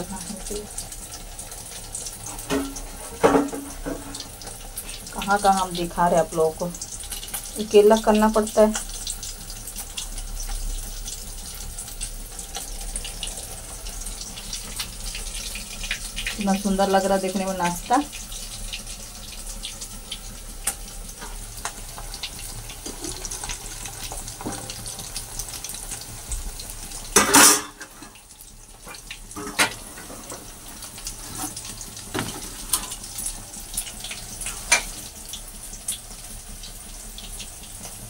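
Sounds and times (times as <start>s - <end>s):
food sizzling in hot oil: 0.0s - 38.0s.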